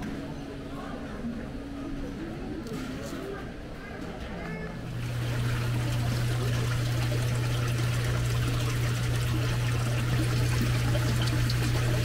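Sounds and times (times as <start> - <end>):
water bubbling and trickling: 5.0 - 12.0.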